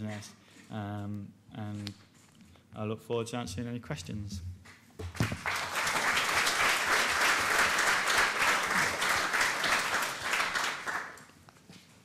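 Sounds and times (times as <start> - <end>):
audience applauding: 5.1 - 11.3.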